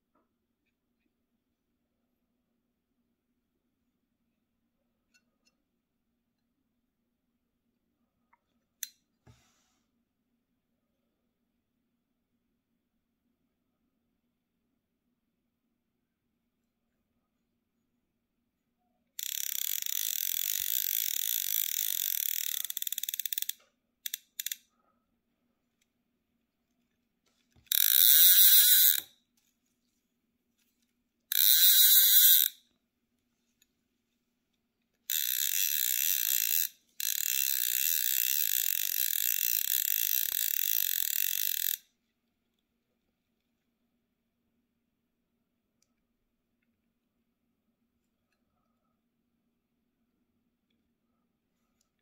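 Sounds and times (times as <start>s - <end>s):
fly reel pawl buzzing: 27.7s - 29.1s, 31.3s - 32.5s, 35.1s - 41.8s.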